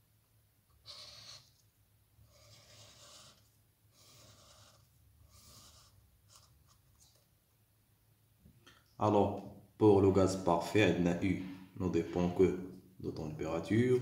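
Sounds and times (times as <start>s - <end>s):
highlighter scratching on paper: 0.8s - 1.6s, 2.2s - 6.8s.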